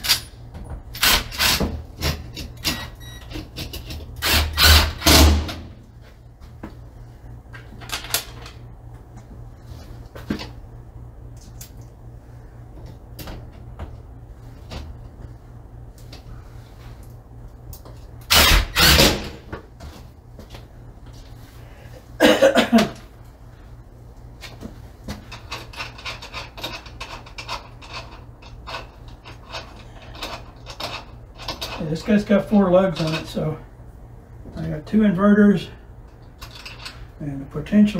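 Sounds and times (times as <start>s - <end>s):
cordless drill driving screws: 4.2s - 5.2s.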